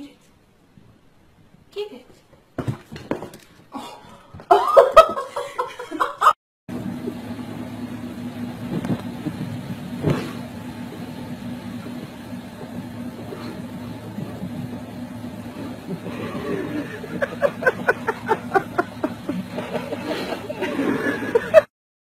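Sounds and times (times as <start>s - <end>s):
car engine and road drone: 6.7s - 21.7s
low hum: 6.7s - 21.7s.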